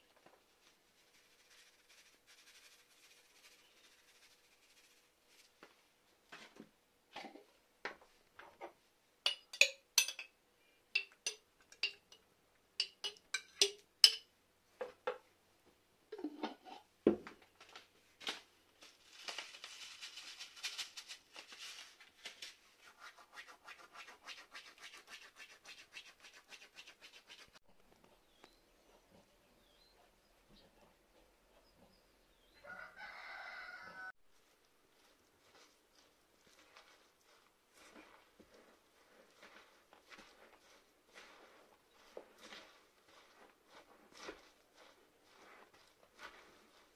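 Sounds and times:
salad leaves rustling: 0.4s - 5.7s, 18.2s - 22.8s, 34.3s - 46.9s
metal spoon tapping plastic bowl: 9.3s - 10.3s, 11.0s - 12.2s, 12.8s - 14.3s.

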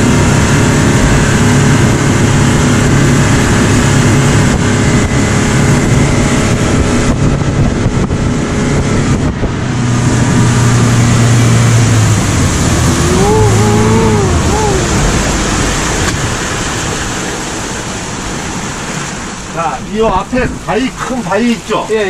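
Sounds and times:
speedboat engine running: 0.0s - 22.0s
wind and spray rushing: 0.0s - 22.0s
drawn-out voice: 12.9s - 15.5s.

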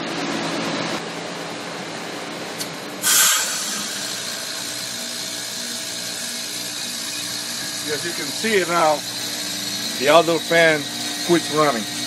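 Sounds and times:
heat pump outdoor unit running: 0.0s - 12.0s
loud hissing rush: 3.0s - 5.9s.

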